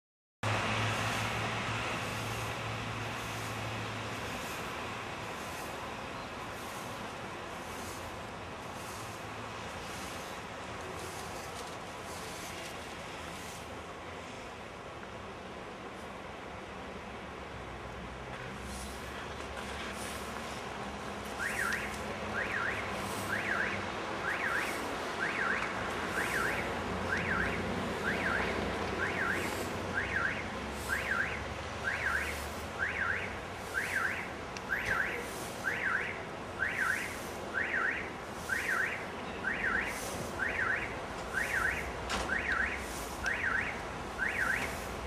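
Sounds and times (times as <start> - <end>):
electronic alarm siren: 21.4 - 44.8.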